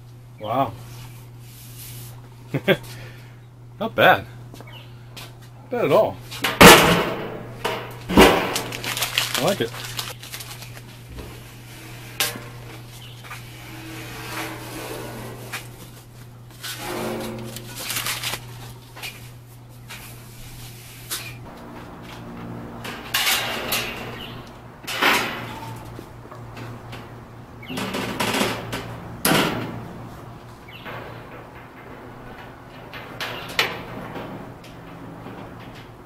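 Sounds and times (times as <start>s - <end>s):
metal grill parts clanking: 6.3s - 19.2s, 21.2s - 36.0s
low hum: 6.4s - 36.0s.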